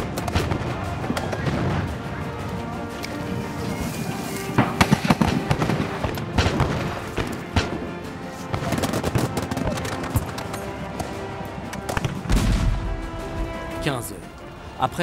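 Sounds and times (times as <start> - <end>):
background music: 0.0 - 15.0
musket shots: 4.6 - 12.8.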